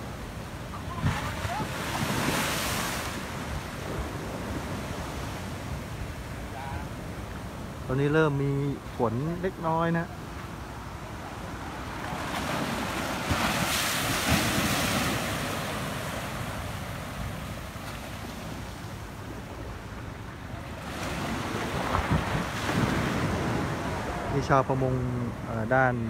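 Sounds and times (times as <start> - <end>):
water surging and foaming: 0.0 - 26.0
surf breaking against seawall: 0.7 - 5.6, 11.9 - 18.6, 20.7 - 24.5
wind buffeting microphone: 18.4 - 25.5.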